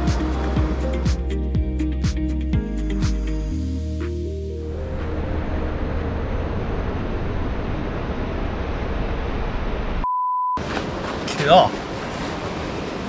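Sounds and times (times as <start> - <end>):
rushing water: 0.0 - 1.5, 10.6 - 13.0.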